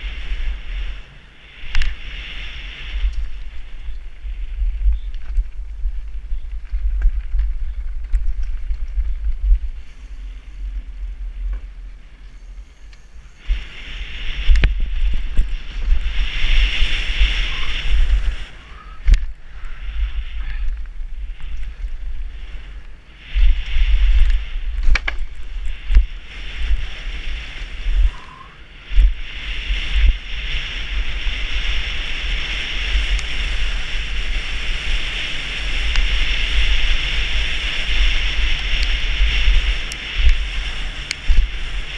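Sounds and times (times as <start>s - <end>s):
bike rattling: 0.0s - 41.9s
wind buffeting microphone: 0.0s - 41.9s
tyres hissing over gravel: 12.4s - 41.9s.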